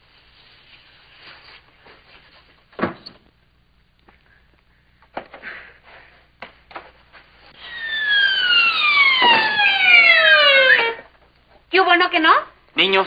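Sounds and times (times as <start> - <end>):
descending slide whistle: 7.6 - 11.1.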